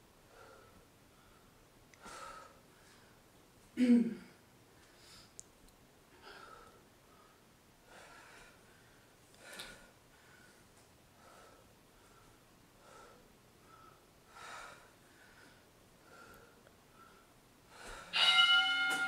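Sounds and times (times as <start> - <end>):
woman's exertion breaths: 0.3 - 3.2, 6.2 - 18.2.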